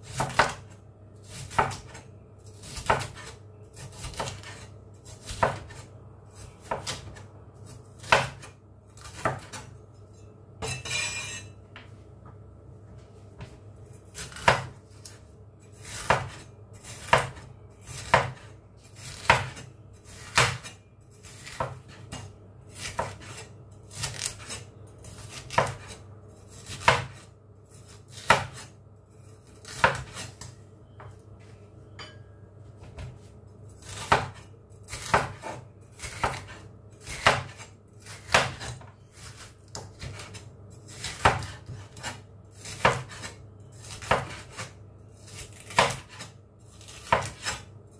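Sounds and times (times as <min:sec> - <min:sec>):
cleaver chopping on cutting board: 0:18.0 - 0:18.5.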